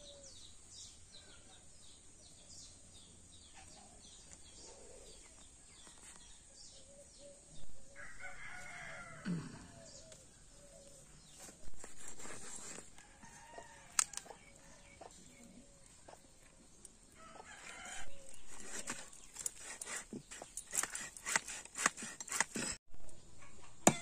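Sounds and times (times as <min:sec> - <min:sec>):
small birds chirping: 0:00.0 - 0:23.8
rooster crowing: 0:08.0 - 0:09.5, 0:13.0 - 0:14.8, 0:17.2 - 0:18.5.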